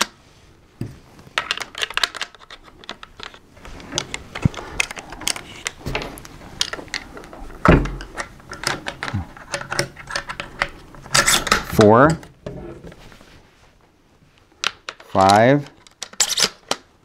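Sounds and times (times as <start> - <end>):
shotgun metallic clicks and rattles: 1.4 - 12.4, 14.6 - 16.9.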